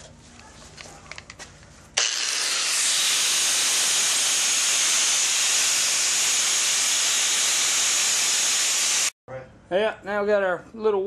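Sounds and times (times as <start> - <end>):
wire wheel grinder hissing: 2.0 - 9.1.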